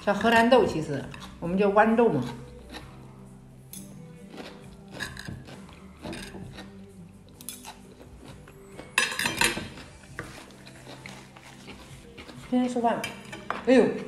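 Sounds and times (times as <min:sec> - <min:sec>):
fork clinking on a plate: 0:08.9 - 0:12.3.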